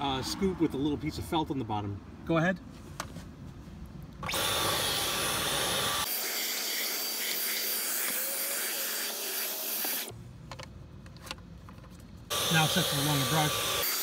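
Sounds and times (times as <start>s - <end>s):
stick vacuum running: 12.3s - 14.0s.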